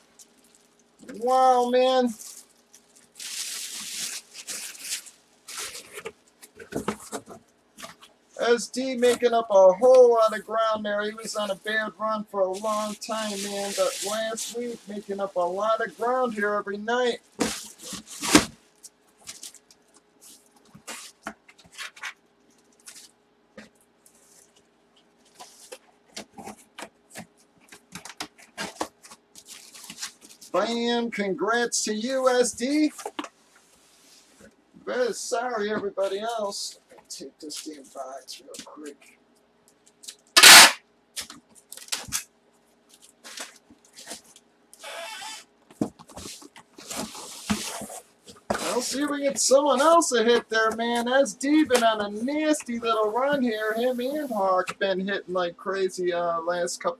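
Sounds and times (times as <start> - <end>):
faint hum: 0.0 - 56.9
packaging rustling and scraping: 2.2 - 8.2, 12.6 - 16.4, 17.2 - 30.6, 41.2 - 52.0
loud sharp noise: 40.4 - 40.8
cardboard scraping: 45.8 - 49.1.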